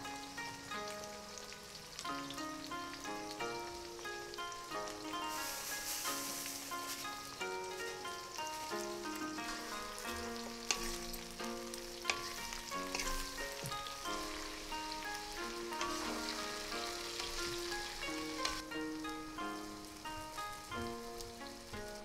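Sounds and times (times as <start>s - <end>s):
background music melody: 0.0s - 22.0s
fruit sizzling in a pan: 0.0s - 22.0s
spatula stirring: 8.6s - 18.6s.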